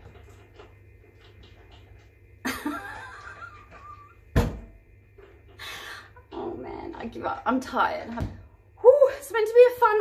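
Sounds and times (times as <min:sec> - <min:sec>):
woman laughing: 0:02.5 - 0:04.2.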